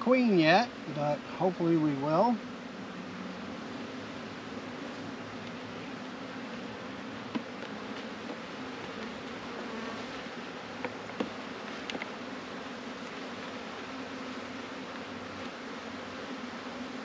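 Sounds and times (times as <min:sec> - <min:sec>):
bees buzzing: 0:00.0 - 0:17.0
wooden hive frames clicking: 0:07.2 - 0:09.4, 0:10.7 - 0:12.2.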